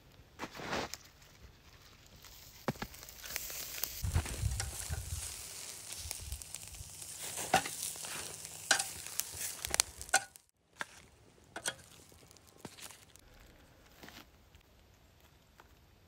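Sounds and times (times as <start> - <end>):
lettuce sizzling on a grill: 1.6 - 10.5, 11.5 - 13.2
metal tongs clicking on grate: 8.7 - 9.0, 10.0 - 10.4, 11.6 - 11.9.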